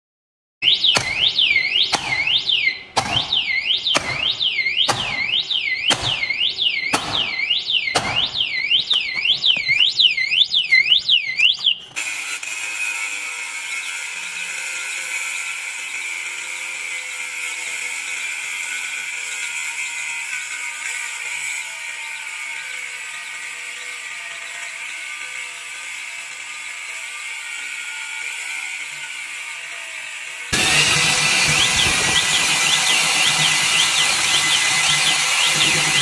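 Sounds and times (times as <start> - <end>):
alarm siren sweeping: 0.6 - 12.0, 12.9 - 36.0
angle grinder whine: 0.6 - 36.0
sharp knocks: 0.9 - 2.4, 3.0 - 9.8.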